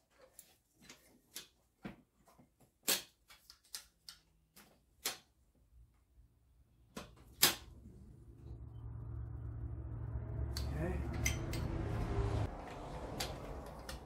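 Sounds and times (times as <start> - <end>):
low hum: 7.6 - 14.0.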